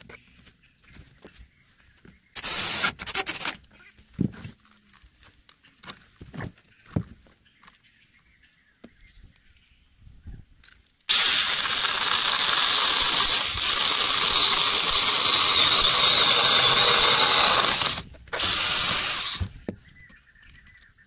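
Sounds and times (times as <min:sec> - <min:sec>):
electric chainsaw cutting wood: 0:02.4 - 0:03.6, 0:11.1 - 0:19.5.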